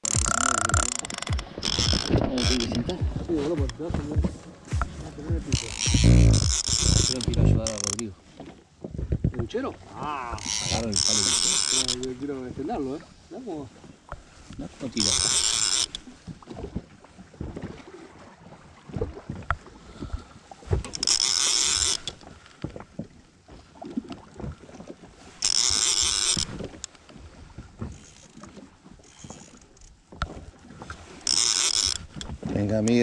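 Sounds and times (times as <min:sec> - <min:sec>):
fishing reel buzzing: 0:00.0 - 0:03.0, 0:05.5 - 0:08.1, 0:10.3 - 0:12.2, 0:14.9 - 0:16.1, 0:20.9 - 0:22.3, 0:25.4 - 0:26.8, 0:29.0 - 0:29.9, 0:31.2 - 0:32.3
wind rumble: 0:00.0 - 0:07.8
fishing rod handling knocks: 0:00.0 - 0:08.5, 0:10.4 - 0:12.2, 0:14.1 - 0:16.1, 0:25.4 - 0:27.0, 0:31.2 - 0:33.0.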